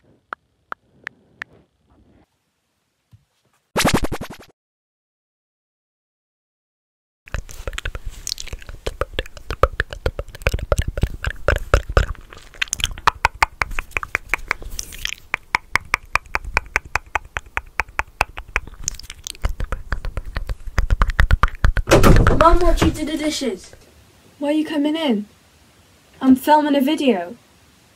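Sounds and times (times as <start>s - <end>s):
wet mouth clicks and smacks: 7.3s - 21.9s.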